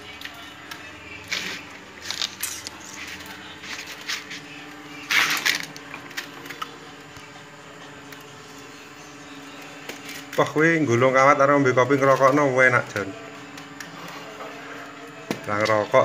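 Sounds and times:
wire scraping and rustling: 1.2 - 6.6.

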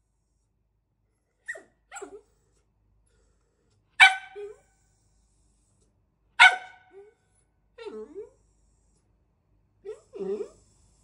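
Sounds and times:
small dog barking: 4.0 - 4.6, 6.4 - 7.1.

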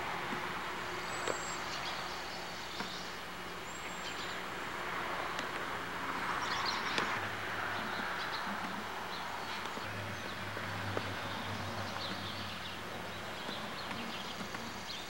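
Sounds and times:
distant hum: 0.0 - 15.0
steady background hiss: 0.0 - 15.0.

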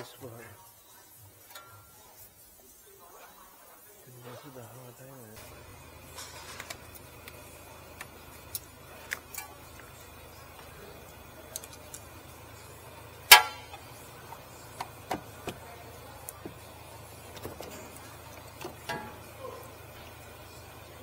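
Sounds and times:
steady low hum: 4.2 - 21.0
loud ringing metallic clank: 13.3 - 13.8, 18.8 - 19.5
metal tools clicking and knocking: 18.6 - 19.3.

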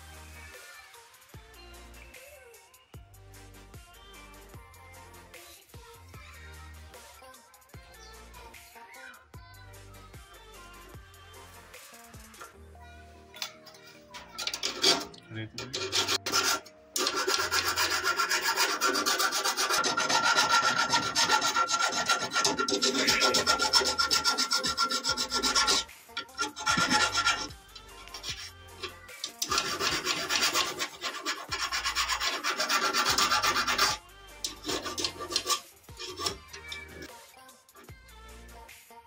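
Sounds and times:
file scraping copper tubing: 13.4 - 37.1.

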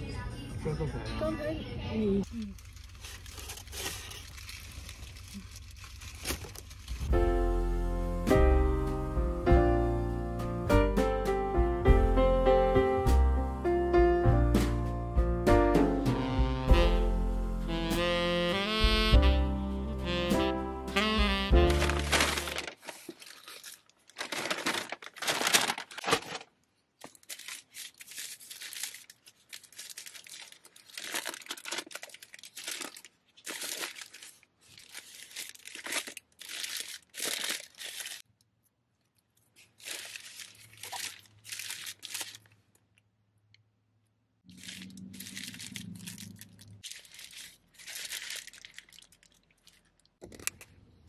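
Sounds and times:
paper bag rustling and crinkling: 2.2 - 7.2, 21.0 - 38.3, 39.5 - 42.7, 44.5 - 50.2.

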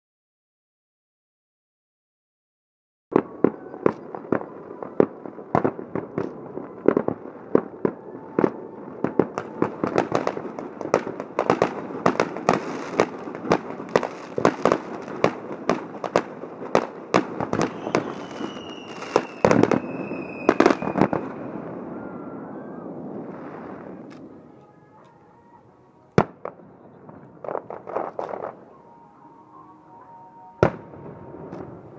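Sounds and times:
fireworks bangs and pops: 3.1 - 21.6, 26.1 - 28.6, 30.6 - 31.9
falling firework whistle: 3.1 - 25.7
heavy firework bangs: 8.4 - 22.0.

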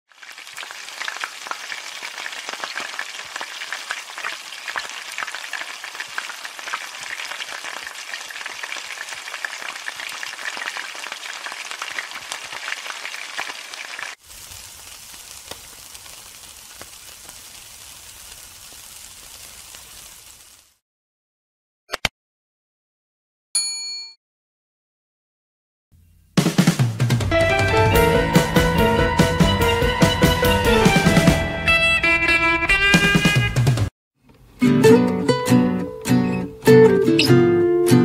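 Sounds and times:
meat sizzling on charcoal grill: 0.1 - 20.8
oil frying in a wok: 0.1 - 20.8.

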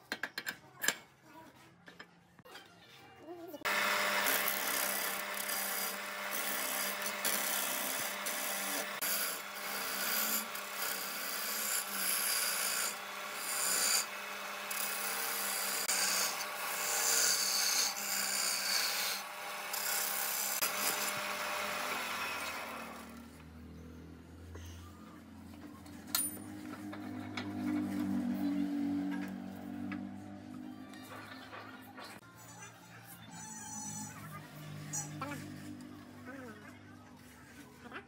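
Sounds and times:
lathe humming: 3.7 - 23.3.

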